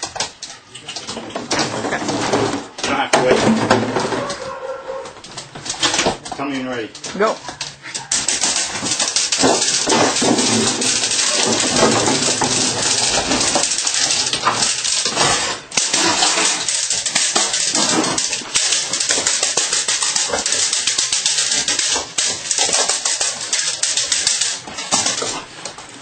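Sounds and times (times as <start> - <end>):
dog scrambling on hard floor: 0.0 - 26.0
dog sounds: 4.0 - 6.0, 7.0 - 15.2.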